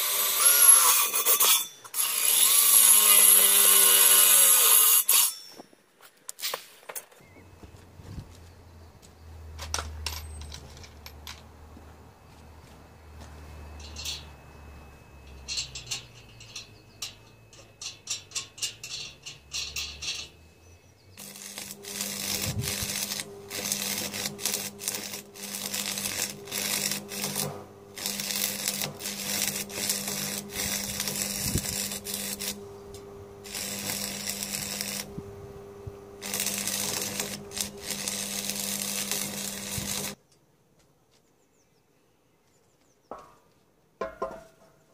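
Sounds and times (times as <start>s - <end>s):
arc welding crackle and hiss: 0.0s - 5.5s, 21.2s - 40.2s.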